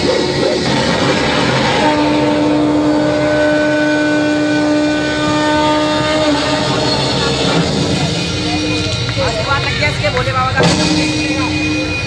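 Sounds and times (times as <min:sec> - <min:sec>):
crowd noise: 0:00.0 - 0:12.0
music: 0:00.0 - 0:12.0
steady pitched tone: 0:00.0 - 0:12.0.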